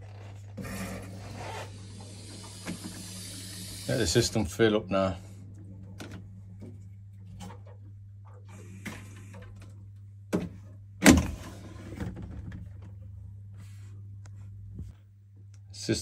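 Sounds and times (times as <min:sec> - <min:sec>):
water filling boiler hum: 0:00.0 - 0:16.0.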